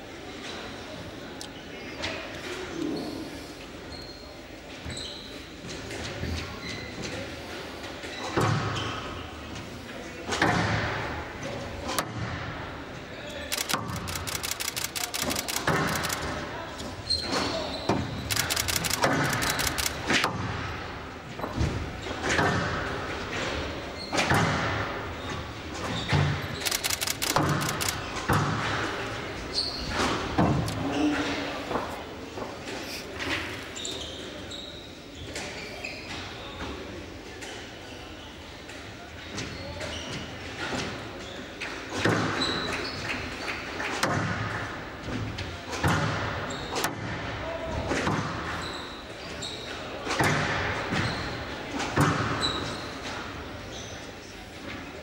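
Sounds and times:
shoe squeaks on court floor: 3.9s - 5.5s, 17.0s - 18.3s, 33.2s - 36.3s, 48.5s - 49.8s, 51.0s - 51.4s, 53.7s - 54.0s
sharp clicks: 13.5s - 16.4s, 18.3s - 20.2s, 26.6s - 28.0s.

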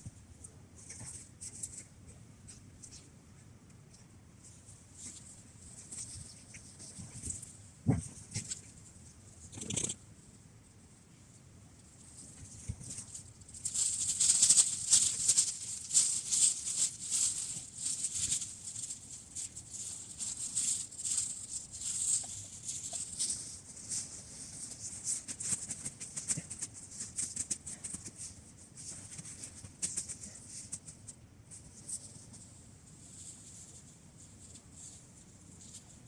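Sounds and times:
tent fabric rustling: 12.7s - 30.8s.

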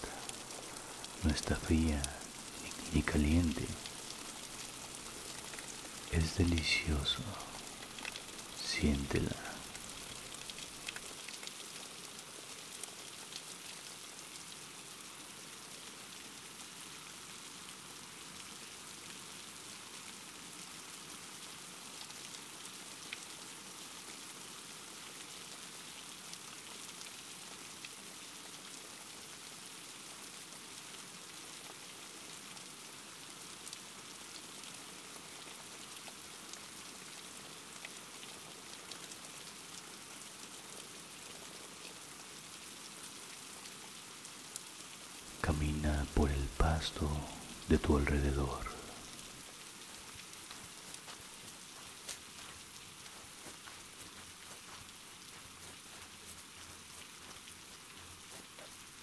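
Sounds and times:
raindrops ticking: 0.0s - 14.0s, 44.6s - 59.0s
steady rain hiss: 0.0s - 59.0s.

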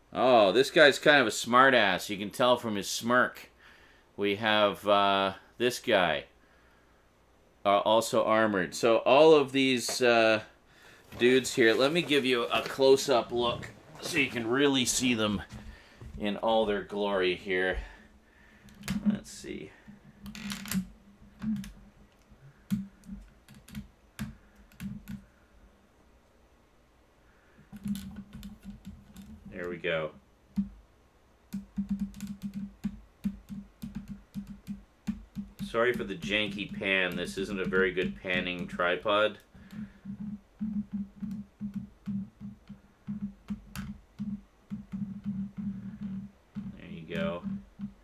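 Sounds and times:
tripod head creaking: 18.6s - 25.2s, 27.6s - 29.6s, 31.6s - 48.0s.

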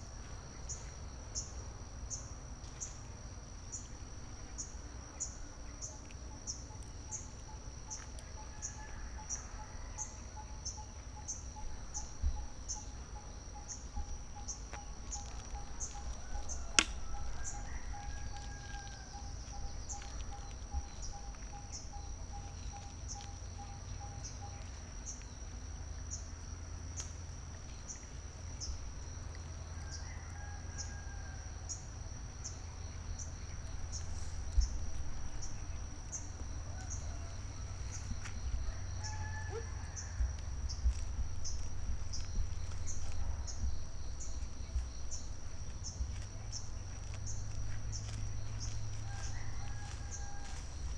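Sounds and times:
insect trilling: 3.7s - 26.3s, 27.0s - 50.9s
low wind rumble: 31.3s - 50.9s.

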